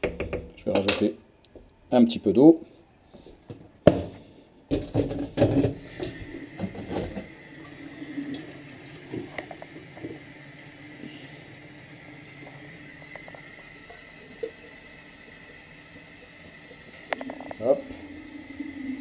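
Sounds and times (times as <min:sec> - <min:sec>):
kitchenware clattering at a sink: 0:03.9 - 0:07.3
tap running into a jug: 0:04.7 - 0:11.2, 0:12.3 - 0:14.8.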